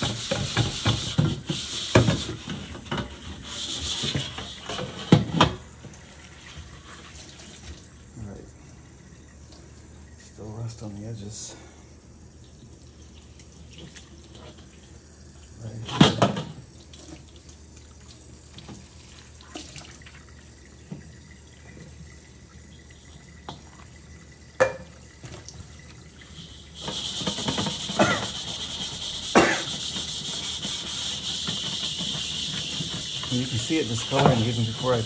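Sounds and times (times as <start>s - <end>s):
metal wok knocking in sink: 0.0s - 3.1s, 31.4s - 35.0s
faucet running water: 0.0s - 35.0s.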